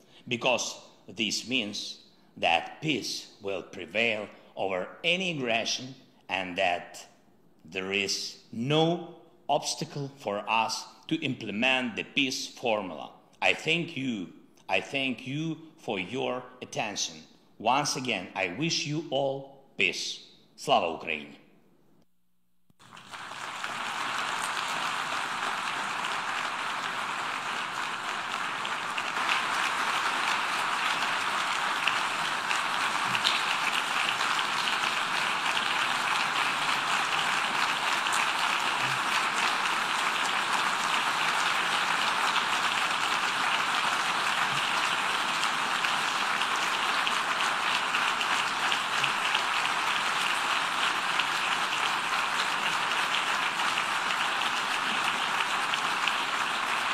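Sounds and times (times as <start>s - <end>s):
audience applauding: 22.8s - 56.9s.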